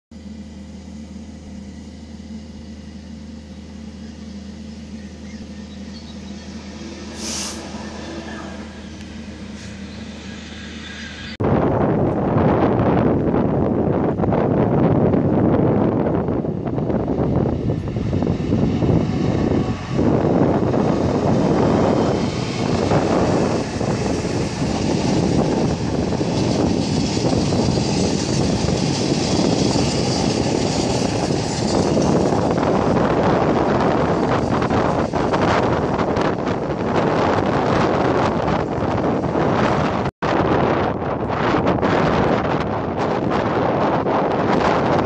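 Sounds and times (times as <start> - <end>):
diesel locomotive engine drone: 0.1 - 45.0
wind buffeting microphone: 5.2 - 45.0
loud hiss: 6.5 - 11.2.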